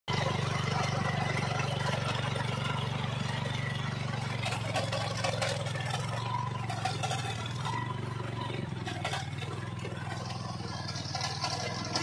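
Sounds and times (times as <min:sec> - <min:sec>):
hand tractor engine running: 0:00.1 - 0:12.0
scraping and rattling: 0:08.8 - 0:12.0.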